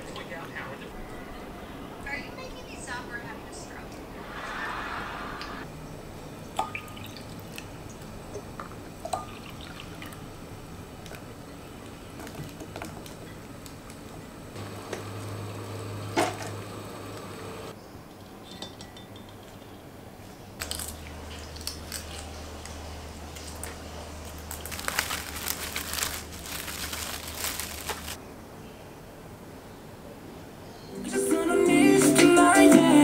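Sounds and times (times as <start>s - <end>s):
pot of water boiling: 5.5s - 17.8s
eggshells cracking and peeling: 20.6s - 22.8s, 23.4s - 28.2s.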